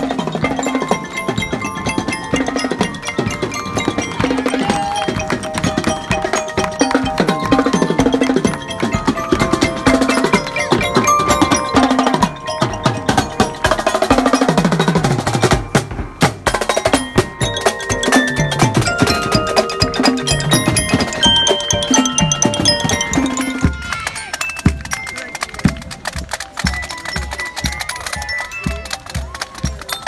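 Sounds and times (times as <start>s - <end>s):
glockenspiel melody: 0.0s - 30.0s
marching band playing: 0.0s - 30.0s
snare drums: 0.0s - 30.0s
bass drums: 1.3s - 24.1s.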